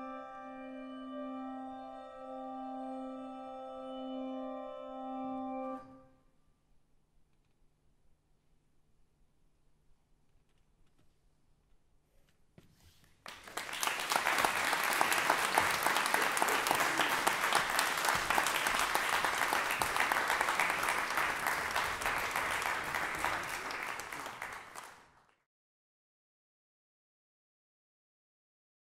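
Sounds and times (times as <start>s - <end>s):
audience applauding: 13.2s - 25.4s.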